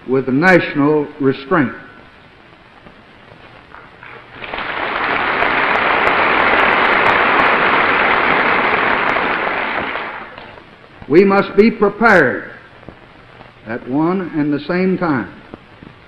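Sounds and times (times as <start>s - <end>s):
large audience applauding: 4.0s - 10.4s.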